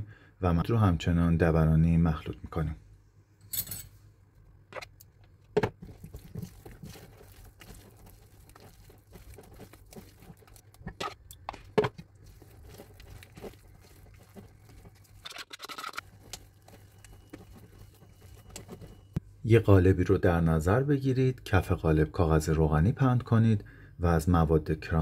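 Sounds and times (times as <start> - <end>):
whisk stirring batter: 5.7 - 15.4, 16.0 - 19.2
scraping in bowl: 5.8 - 11.2, 16.0 - 19.2.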